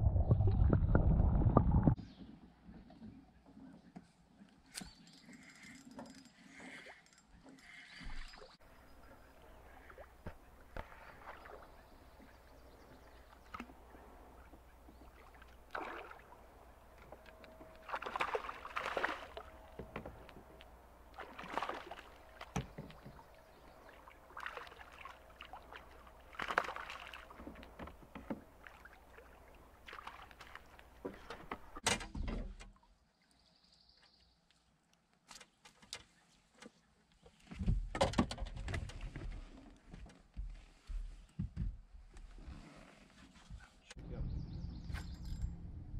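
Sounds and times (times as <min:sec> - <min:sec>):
water splashing beside a boat: 0:07.9 - 0:33.0
fish thrashing at the surface: 0:17.8 - 0:19.5, 0:21.2 - 0:22.7, 0:24.3 - 0:27.4.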